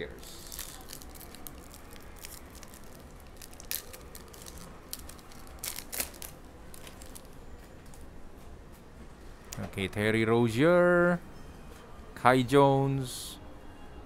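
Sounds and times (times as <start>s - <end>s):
foil wrapper tearing and crinkling: 0.3s - 7.4s.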